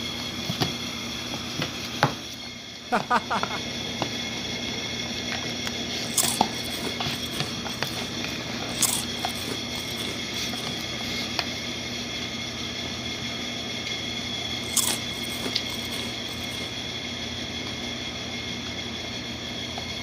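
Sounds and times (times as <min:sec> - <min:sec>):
steady room hum: 0:00.0 - 0:20.0
person chewing food: 0:05.7 - 0:11.4, 0:14.7 - 0:16.8.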